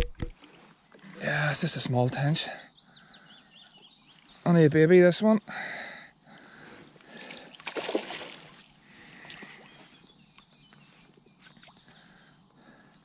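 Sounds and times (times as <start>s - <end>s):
faint birdsong: 0.3s - 13.0s
water splashing and sloshing: 7.1s - 9.9s.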